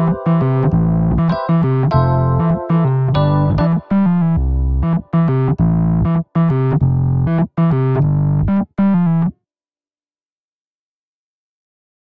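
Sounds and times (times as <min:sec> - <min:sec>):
electronic keyboard chords: 0:00.0 - 0:09.3.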